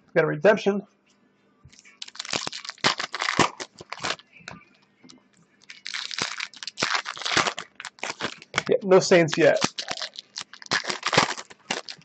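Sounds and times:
foil wrapper crinkling: 0:02.0 - 0:04.2, 0:05.6 - 0:12.0.

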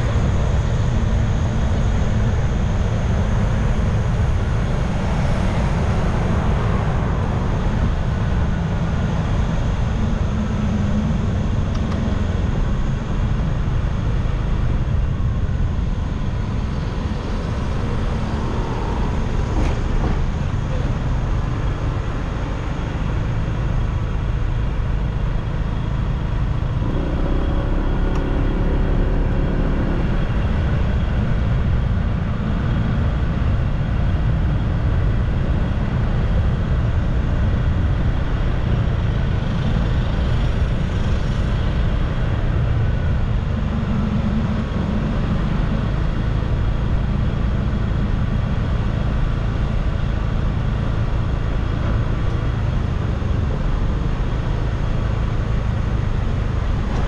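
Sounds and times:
road noise: 0:00.0 - 0:57.0.

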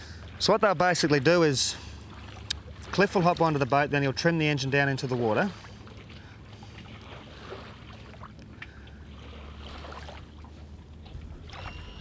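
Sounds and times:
faint low outdoor rumble: 0:05.5 - 0:12.0.

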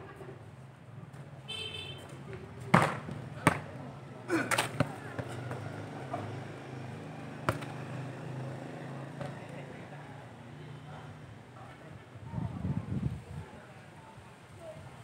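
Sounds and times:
murmur of voices: 0:02.1 - 0:15.0
football kick thumps: 0:02.7 - 0:03.7, 0:07.5 - 0:07.7.

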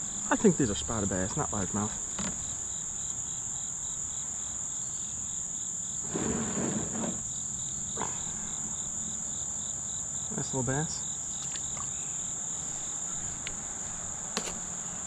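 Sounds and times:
insect chirping in fast pulse: 0:00.0 - 0:15.0
insect high steady buzz: 0:00.0 - 0:15.0
handling rustle: 0:11.4 - 0:15.0.

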